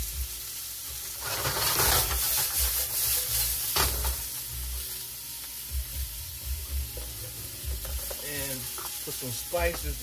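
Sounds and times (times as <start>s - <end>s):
stir-fry sizzling in a wok: 0.0s - 10.0s
scrape in a wok: 1.1s - 5.0s.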